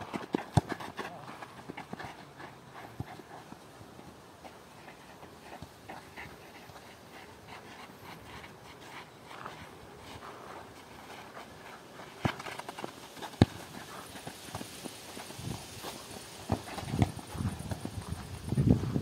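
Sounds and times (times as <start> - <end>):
football being kicked: 0.0 - 0.9, 12.2 - 13.8, 16.4 - 18.0
footsteps scuffing on sandy dirt: 5.3 - 19.0.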